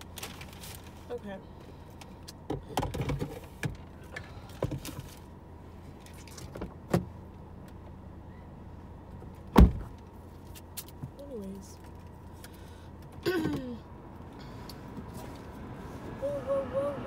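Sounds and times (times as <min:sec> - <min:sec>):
car door slamming: 0:09.5 - 0:10.0.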